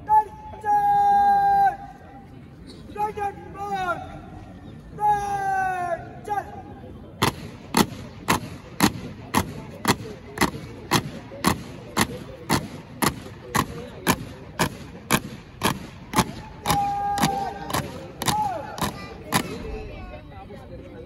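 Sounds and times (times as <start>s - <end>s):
boots marching in unison: 7.2s - 19.6s.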